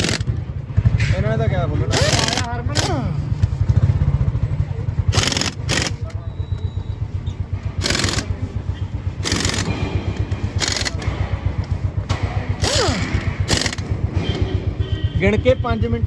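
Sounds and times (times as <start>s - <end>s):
pneumatic impact wrench bursts: 0.0s - 0.4s, 1.9s - 3.2s, 5.1s - 6.3s, 7.8s - 11.1s, 12.5s - 14.5s.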